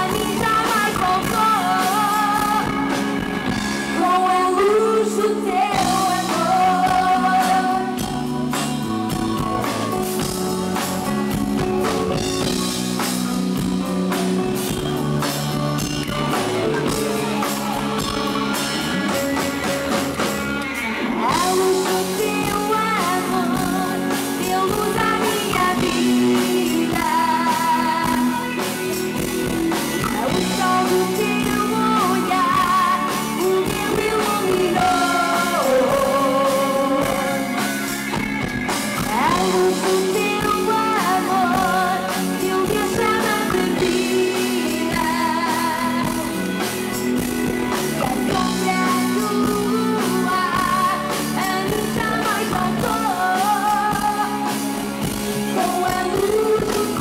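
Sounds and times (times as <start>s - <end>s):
woman singing with vibrato: 0.0s - 10.4s, 21.0s - 38.0s, 39.0s - 47.1s, 47.9s - 57.0s
live band with drums and guitar: 0.0s - 57.0s.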